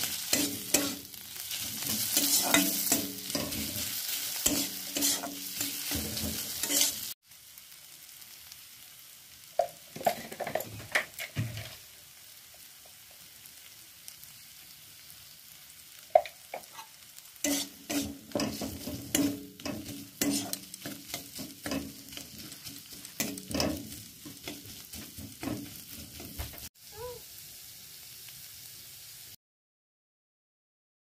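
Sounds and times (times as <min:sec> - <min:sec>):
metal spatula scraping wok: 0:00.0 - 0:07.2, 0:16.5 - 0:26.7
low frying sizzle: 0:00.0 - 0:29.4.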